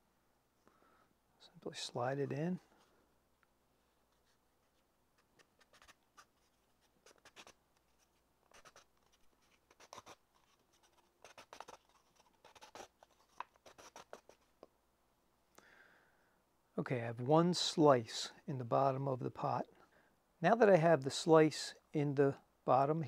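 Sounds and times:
blade scratching wood: 8.5 - 14.4.

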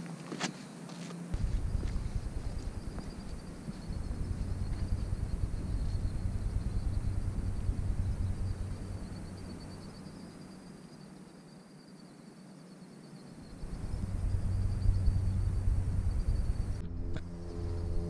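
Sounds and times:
faint high-pitched hiss: 0.0 - 16.8
wind buffeting microphone: 1.4 - 10.2, 13.6 - 16.8.

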